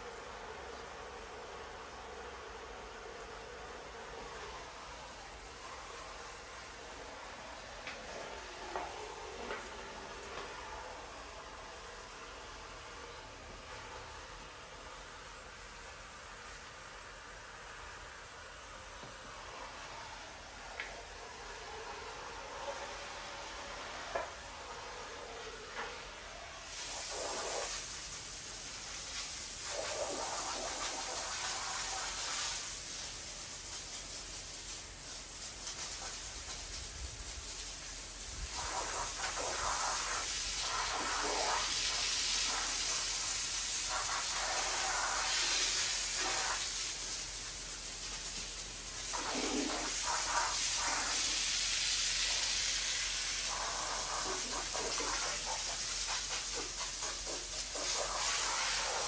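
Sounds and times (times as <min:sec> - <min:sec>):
pressure washer spraying: 0:26.6 - 0:59.0.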